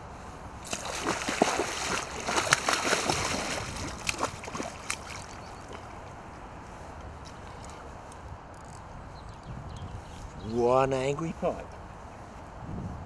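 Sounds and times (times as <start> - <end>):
fish splashing at water surface: 0.6 - 5.9.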